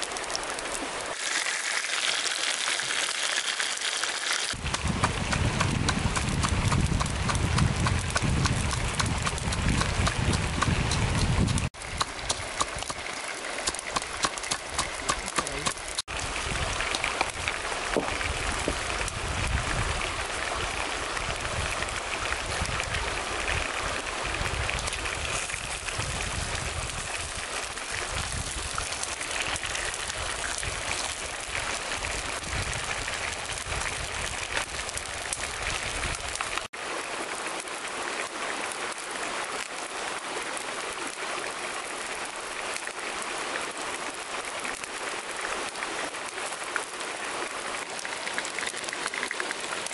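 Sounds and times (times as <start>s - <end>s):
chicken sizzling in hot oil: 1.1s - 5.4s.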